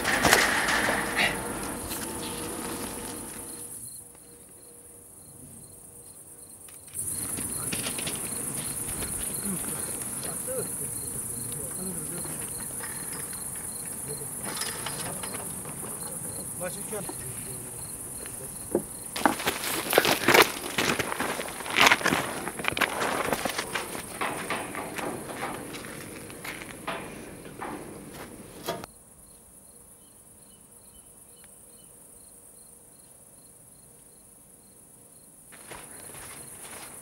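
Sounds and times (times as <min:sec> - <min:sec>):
rustles and knocks of movement: 0:00.0 - 0:03.8, 0:07.0 - 0:28.9
crickets chirping: 0:00.0 - 0:37.0.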